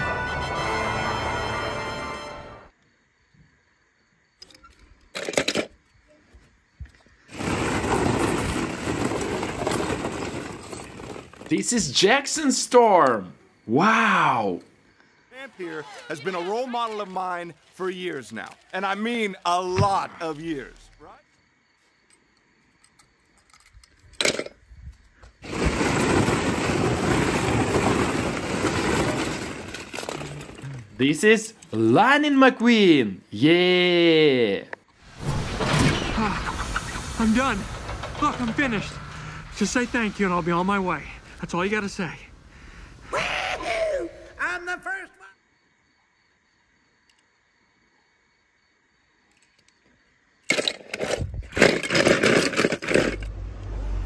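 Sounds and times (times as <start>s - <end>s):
music: 0.0s - 2.7s
plastic balls rustling and clattering: 7.3s - 12.0s, 25.4s - 31.0s, 36.6s - 39.9s, 50.5s - 53.3s
short clatter: 35.2s - 39.6s.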